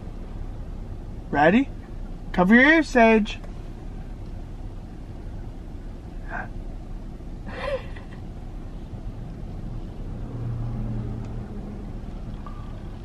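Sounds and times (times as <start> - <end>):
car wash low rumble: 0.0 - 13.0
low hum: 3.4 - 13.0.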